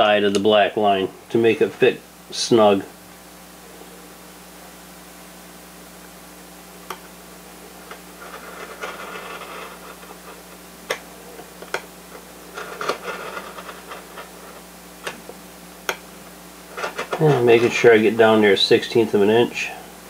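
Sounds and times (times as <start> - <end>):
knife blade scraping wood: 8.2 - 10.4, 12.5 - 15.2.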